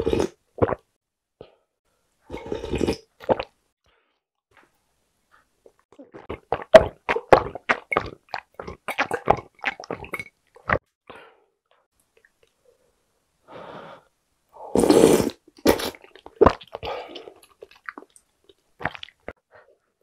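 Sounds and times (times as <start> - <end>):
person slurping broth: 0.0 - 0.8, 2.3 - 3.5, 14.6 - 18.0
person gulping water: 0.0 - 0.9, 2.3 - 3.5, 5.9 - 10.8, 14.8 - 19.4.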